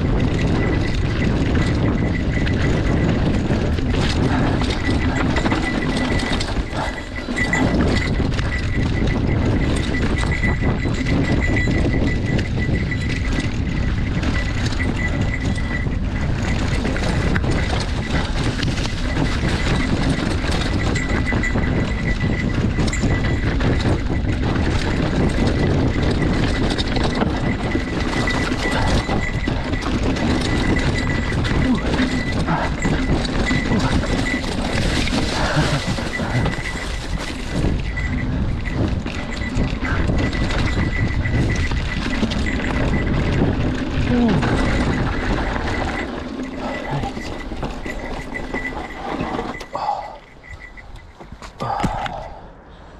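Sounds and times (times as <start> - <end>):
bike rattling over bumps: 0.0 - 52.0
wind on microphone: 0.0 - 52.4
bike tyres crunching over dirt: 32.3 - 48.8.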